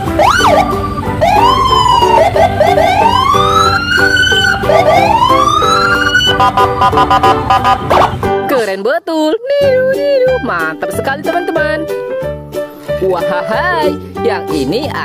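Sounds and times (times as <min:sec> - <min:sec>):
police siren wailing: 0:00.0 - 0:08.2
background music: 0:00.0 - 0:15.0.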